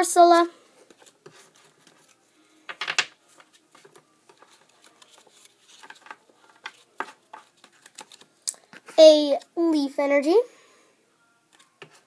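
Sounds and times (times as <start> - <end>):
cards rustling: 0.8 - 9.0.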